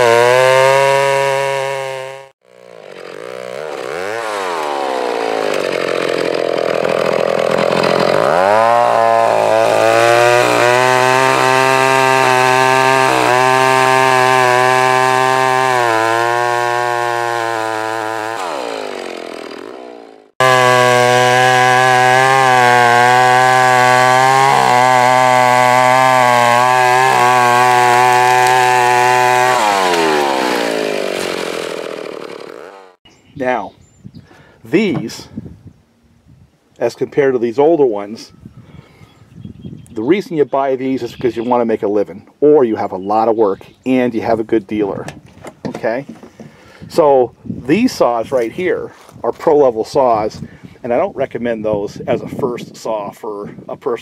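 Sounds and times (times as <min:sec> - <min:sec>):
chainsaw cutting a tree: 0:00.0 - 0:33.0.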